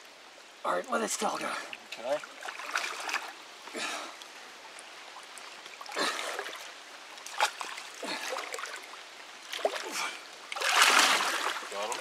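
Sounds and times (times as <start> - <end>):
creek water trickling: 0.0 - 12.0
splashes in water: 2.0 - 3.4, 5.8 - 12.0.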